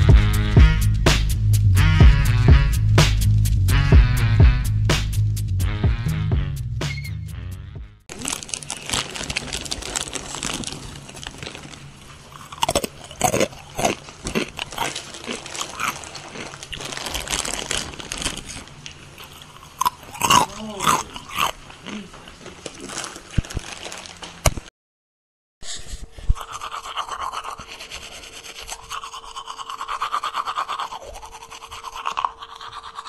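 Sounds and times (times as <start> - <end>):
crunchy snacks being chewed: 8.1 - 24.7, 26.4 - 33.0.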